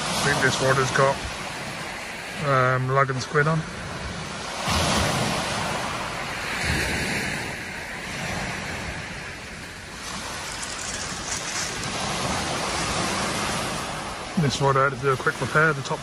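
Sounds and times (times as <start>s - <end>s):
waves washing over shingle: 0.0s - 16.0s
wind rumble on microphone: 3.6s - 14.6s.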